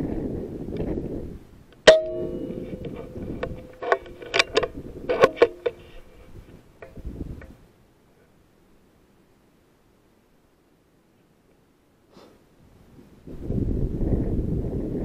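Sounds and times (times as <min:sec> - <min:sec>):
sharp metallic click with ringing: 0:01.8 - 0:05.8
rifle handling rumble: 0:01.8 - 0:07.6
light clicks and rattles: 0:02.1 - 0:07.6.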